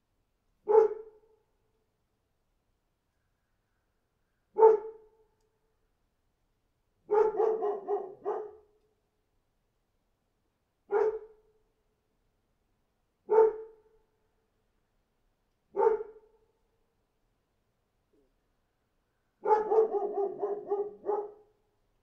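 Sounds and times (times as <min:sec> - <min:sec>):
dog barking: 0:00.6 - 0:01.2, 0:04.6 - 0:05.1, 0:07.1 - 0:08.7, 0:10.9 - 0:11.4, 0:13.3 - 0:13.8, 0:15.7 - 0:16.3, 0:19.4 - 0:21.5.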